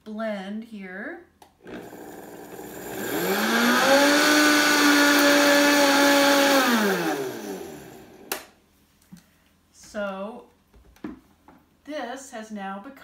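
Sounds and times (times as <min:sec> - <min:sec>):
blender motor whining: 0:01.6 - 0:08.4.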